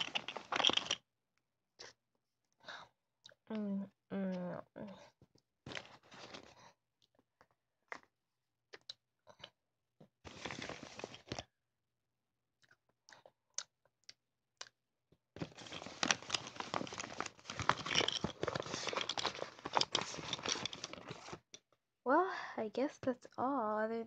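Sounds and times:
crinkly packaging rustling: 0:00.0 - 0:01.0, 0:05.7 - 0:06.5, 0:10.3 - 0:11.4, 0:15.4 - 0:21.5.

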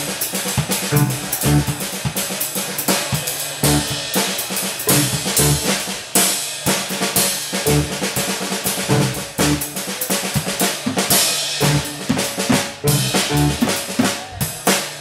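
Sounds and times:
jazz-funk trio playing: 0:00.0 - 0:14.5
drum kit hits: 0:00.0 - 0:14.7
organ chords: 0:00.9 - 0:01.9, 0:03.6 - 0:04.1, 0:04.9 - 0:05.9, 0:07.6 - 0:08.2, 0:08.8 - 0:09.8, 0:11.6 - 0:14.1
walking bass notes: 0:00.9 - 0:01.9, 0:03.6 - 0:04.1, 0:04.9 - 0:05.9, 0:07.6 - 0:09.8, 0:11.6 - 0:14.1.

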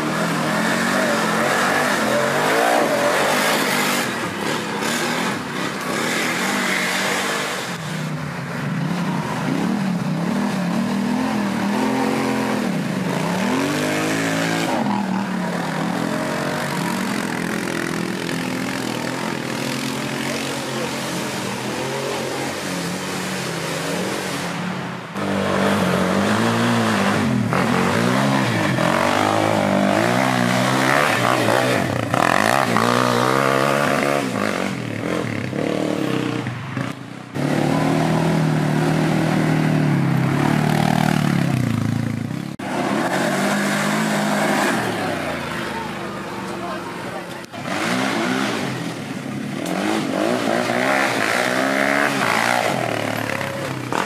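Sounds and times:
quad bike engines revving: 0:00.0 - 0:54.0.

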